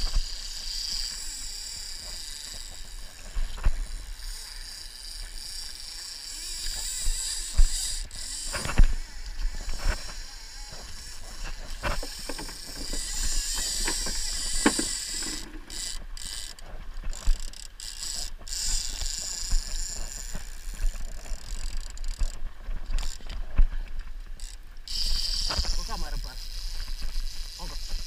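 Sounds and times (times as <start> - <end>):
fishing reel ratcheting: 0.0 - 23.4, 24.4 - 28.0
wind: 0.0 - 28.0.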